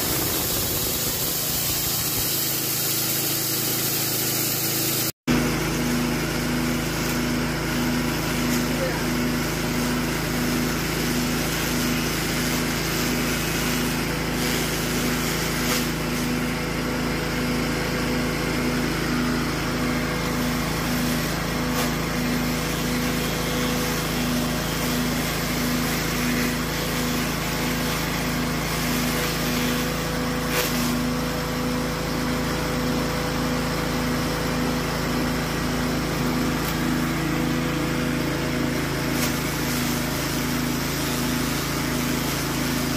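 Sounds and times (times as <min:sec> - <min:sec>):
petrol engine running: 0:00.0 - 0:02.8
grass being chopped: 0:00.0 - 0:16.6, 0:20.0 - 0:31.5, 0:35.7 - 0:42.9.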